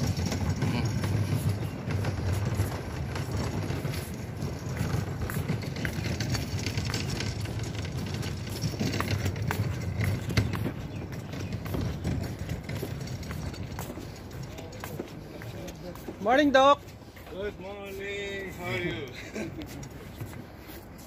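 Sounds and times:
wind rumble on microphone: 0.0s - 14.7s
footsteps on dock boards: 0.0s - 21.0s.

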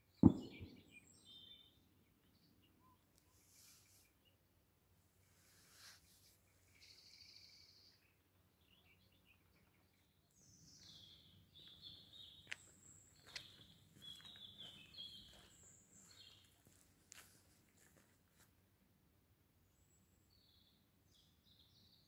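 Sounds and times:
birds chirping and trilling: 0.1s - 4.3s, 6.5s - 16.6s.

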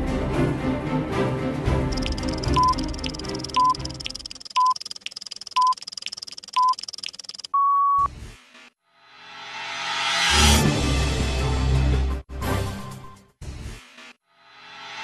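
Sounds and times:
background music: 0.0s - 4.3s, 10.1s - 14.2s
longer higher beep: 1.9s - 4.8s
clock ticking: 1.9s - 7.6s
short time signal beeps: 1.9s - 8.1s.

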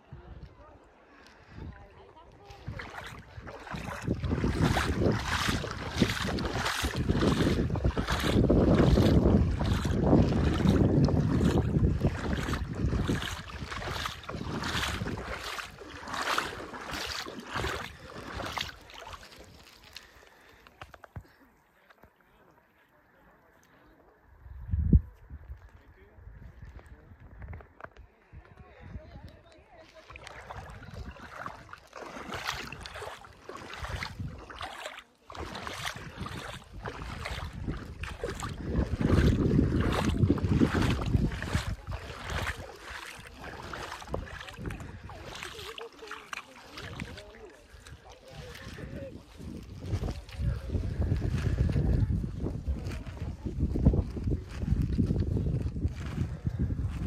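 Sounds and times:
water sloshing and splashing: 1.1s - 22.5s, 29.5s - 57.0s
wind buffeting microphone: 1.4s - 19.6s, 24.3s - 29.6s, 30.2s - 34.8s, 35.4s - 45.6s, 46.9s - 57.0s
footsteps walking: 2.7s - 21.3s, 31.3s - 47.0s.

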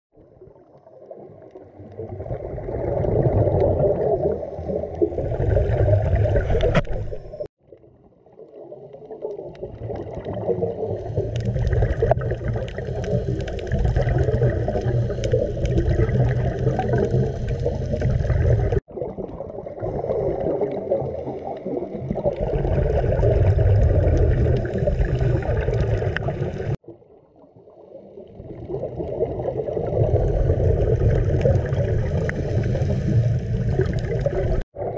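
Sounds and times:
muffled underwater rumble: 0.2s - 34.9s
scuba exhaust bubbles: 0.2s - 34.9s.

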